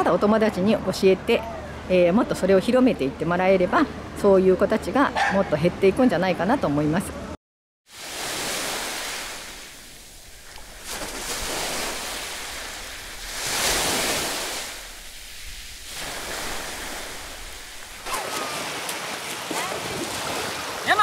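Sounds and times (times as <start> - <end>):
sea waves washing on beach: 7.9 - 21.0
feet splashing in shallow water: 8.1 - 21.0.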